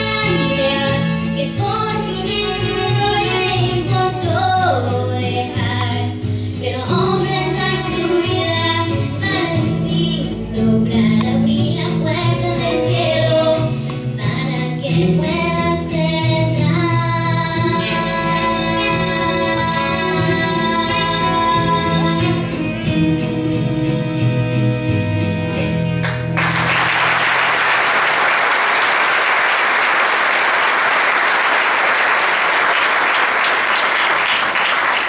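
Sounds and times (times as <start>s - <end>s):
girl singing: 0.0s - 22.6s
song music: 0.0s - 27.9s
congregation applauding: 26.0s - 35.0s.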